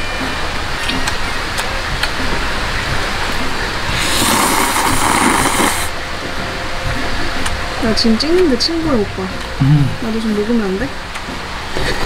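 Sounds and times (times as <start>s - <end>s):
man slurping noodles: 3.9s - 5.9s.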